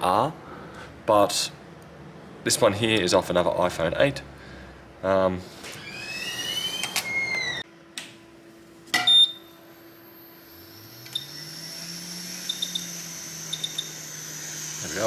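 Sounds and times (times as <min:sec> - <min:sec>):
blower hiss and hum: 0:00.0 - 0:15.0
rising whine: 0:05.8 - 0:07.6, 0:09.4 - 0:15.0.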